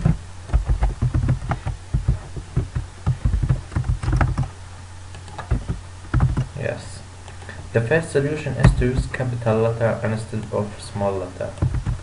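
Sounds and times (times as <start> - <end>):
keyboard typing: 0.0 - 4.5, 5.1 - 6.5, 11.6 - 12.0
low steady hum: 0.0 - 12.0.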